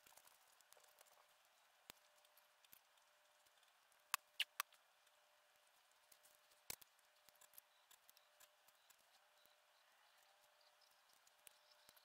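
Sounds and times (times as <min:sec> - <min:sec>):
light clicks and ticks: 0:00.0 - 0:05.2.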